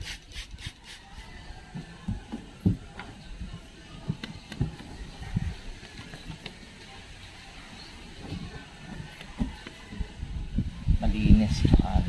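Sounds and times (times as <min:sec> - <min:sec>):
spray bottle hissing: 0:00.0 - 0:01.2.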